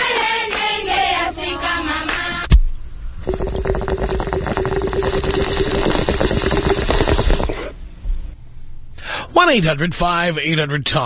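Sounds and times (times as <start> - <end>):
steady pitched tone: 3.0 - 7.8
water bubbling through a bong: 3.1 - 7.8.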